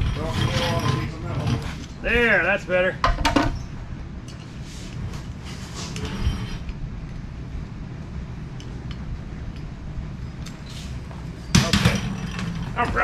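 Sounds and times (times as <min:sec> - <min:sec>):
steady low rumble: 0:00.0 - 0:13.0
metal parts clinking and scraping: 0:11.6 - 0:13.0.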